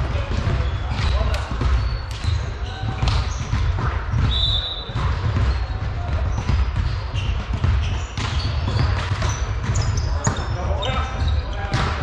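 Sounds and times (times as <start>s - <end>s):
ball thuds and bounces: 0.0s - 11.0s, 11.6s - 12.0s
players' voices echoing: 0.0s - 12.0s
shoe squeaks: 0.5s - 12.0s.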